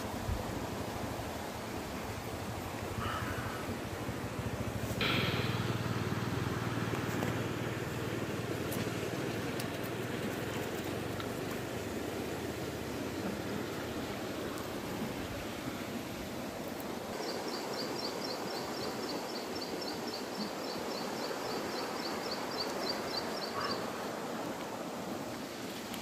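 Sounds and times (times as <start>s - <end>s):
creek background noise: 0.0s - 26.0s.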